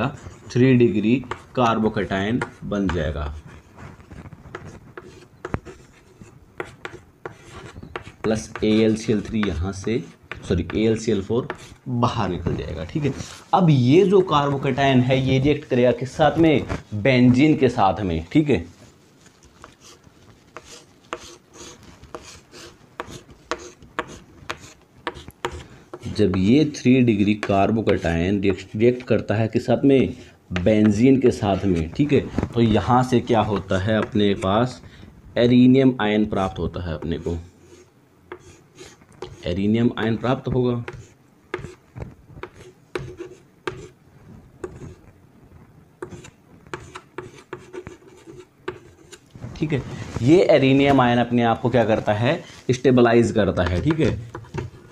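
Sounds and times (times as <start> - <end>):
chalk tapping on chalkboard: 2.4 - 3.0, 4.5 - 11.8, 20.6 - 26.5, 37.7 - 39.4, 40.8 - 41.8, 42.4 - 44.0, 44.6 - 45.0, 46.0 - 49.2, 53.6 - 54.9
chalk scraping: 3.2 - 11.8, 13.0 - 13.6, 19.6 - 26.4, 37.2 - 39.5, 40.8 - 41.8, 42.4 - 44.0, 44.6 - 45.1, 46.0 - 49.3.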